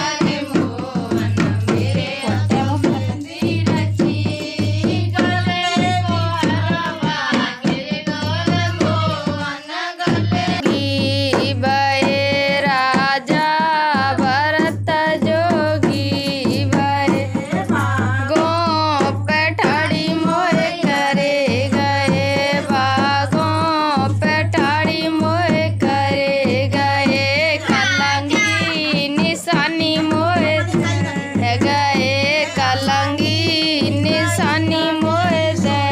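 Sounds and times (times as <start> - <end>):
person singing: 9.5 - 35.9
hand drum playing: 15.3 - 35.9.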